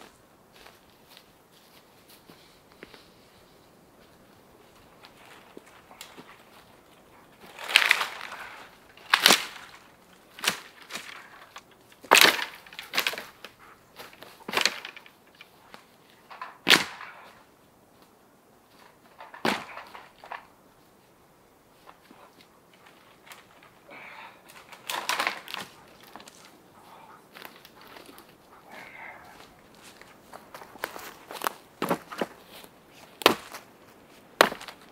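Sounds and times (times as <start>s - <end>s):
wood cracking and knocking: 7.4s - 17.2s, 19.0s - 20.5s, 24.5s - 26.5s, 33.2s - 33.6s, 34.4s - 34.9s.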